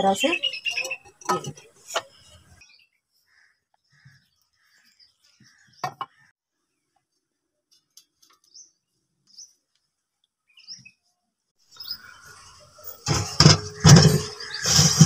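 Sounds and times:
metal cooking pots clanking: 0:00.8 - 0:02.0, 0:13.0 - 0:15.0.

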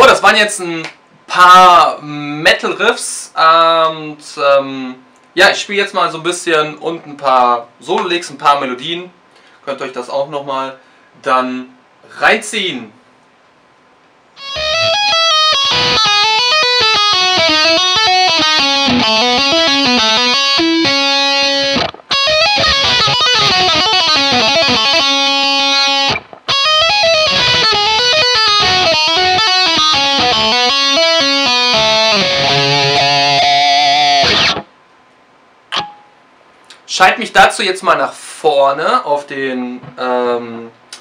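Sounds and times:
electric guitar solo: 0:14.4 - 0:34.7.

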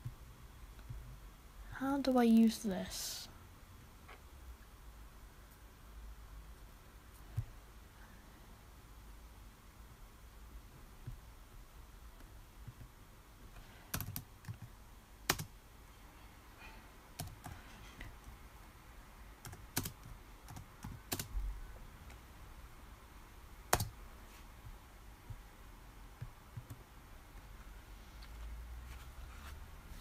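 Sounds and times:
computer keyboard typing: 0:13.9 - 0:14.7, 0:15.3 - 0:15.5, 0:17.2 - 0:17.6, 0:19.4 - 0:21.4, 0:23.7 - 0:24.0.

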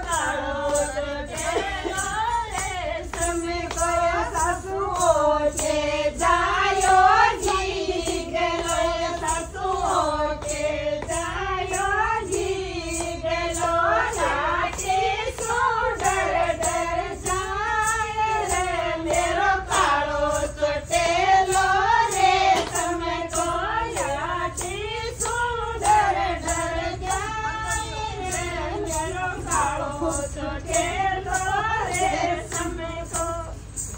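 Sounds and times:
women singing together: 0:00.0 - 0:33.9.

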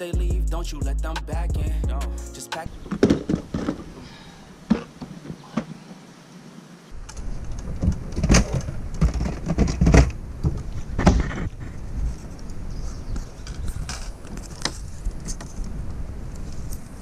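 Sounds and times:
plastic boxes clattering: 0:02.7 - 0:05.8, 0:07.6 - 0:11.6.

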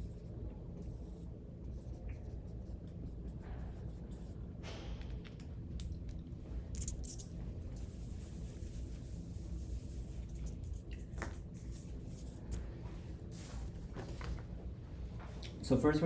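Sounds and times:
marker scratching on whiteboard: 0:00.0 - 0:05.0, 0:06.7 - 0:12.4
low room hum: 0:00.0 - 0:16.0.

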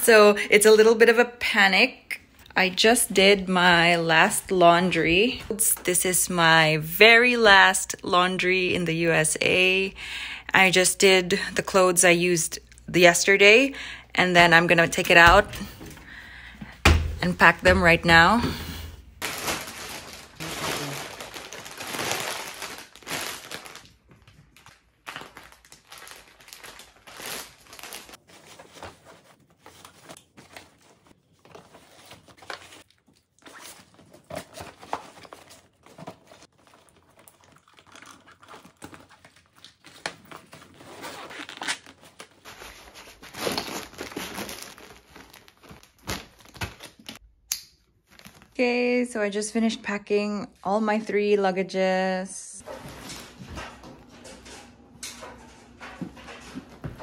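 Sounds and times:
plastic bags crinkling and rustling: 0:19.2 - 0:47.2, 0:48.0 - 0:48.6, 0:52.6 - 0:56.9.

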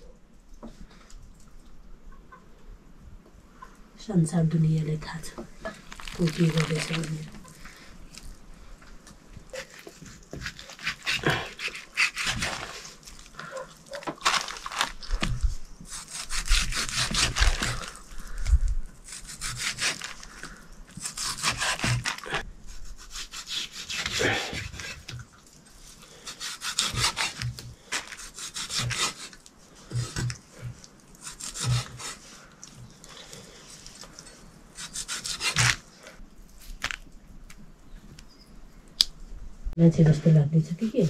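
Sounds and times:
blade rasping through meat: 0:10.4 - 0:13.0, 0:15.9 - 0:18.0, 0:19.1 - 0:20.2, 0:21.0 - 0:25.1, 0:26.2 - 0:30.3, 0:31.2 - 0:32.3, 0:34.8 - 0:35.8.

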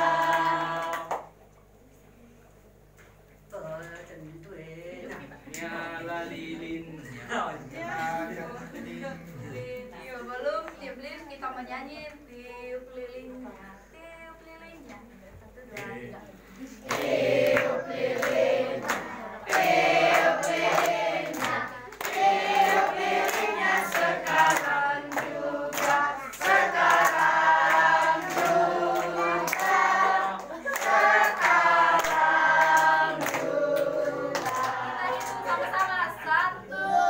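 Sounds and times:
group singing a birthday song: 0:00.0 - 0:01.5, 0:03.4 - 0:10.4, 0:15.6 - 0:37.0
hand clapping: 0:16.9 - 0:36.0.

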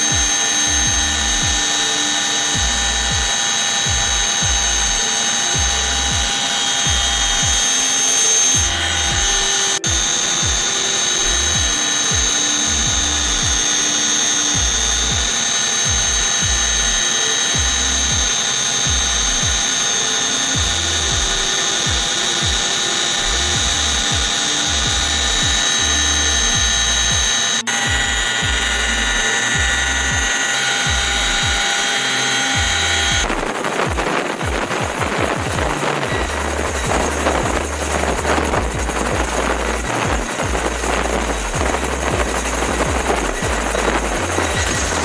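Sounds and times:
electronic music with deep bass: 0:00.0 - 0:45.0
high-pitched whine: 0:00.0 - 0:45.0
booming kick drums: 0:33.2 - 0:45.0.

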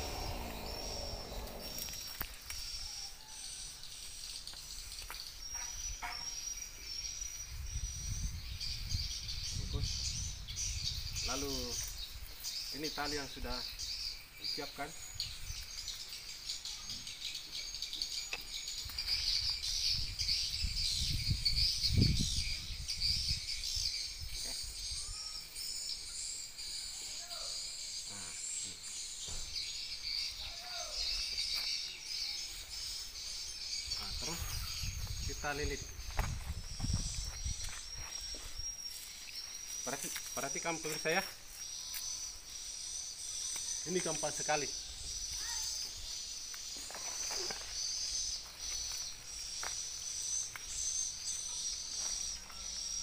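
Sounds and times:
birds chirping: 0:00.0 - 0:53.0
high-pitched insect chorus: 0:00.0 - 0:53.0
rustling of fibre and leaves: 0:46.6 - 0:49.8.

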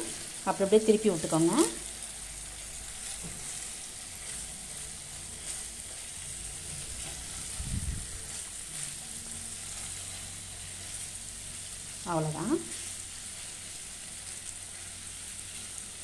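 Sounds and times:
chicken sizzling in a frying pan: 0:00.0 - 0:16.0
spatula scraping a pan: 0:03.0 - 0:11.2.

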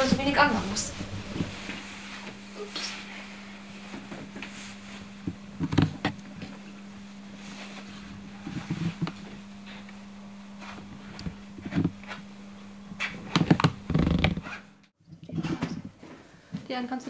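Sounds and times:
steady low hum: 0:00.0 - 0:06.0.

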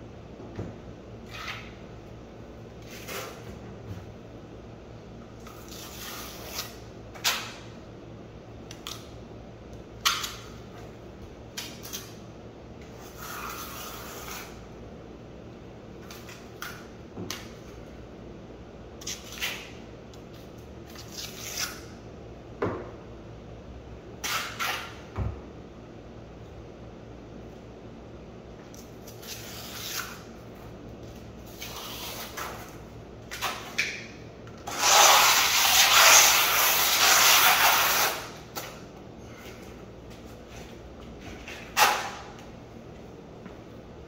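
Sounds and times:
trowel scraping concrete: 0:34.7 - 0:38.2.

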